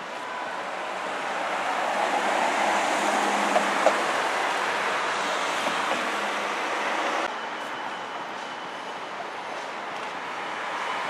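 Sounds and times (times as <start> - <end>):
car passing and driving away: 0.3 - 7.3.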